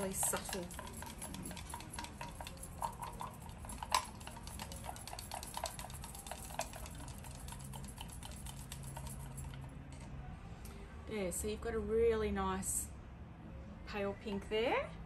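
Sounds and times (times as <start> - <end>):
wooden stick scraping glass jar: 0.0 - 9.6.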